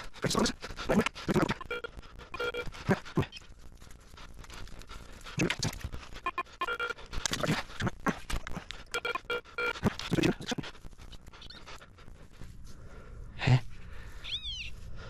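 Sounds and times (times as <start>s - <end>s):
metal detector beeps: 1.5s - 2.7s, 6.2s - 7.0s, 8.9s - 9.8s.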